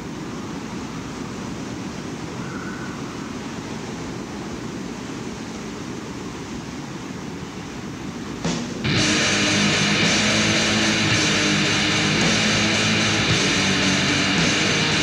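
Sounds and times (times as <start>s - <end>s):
low rushing noise: 8.4s - 15.0s.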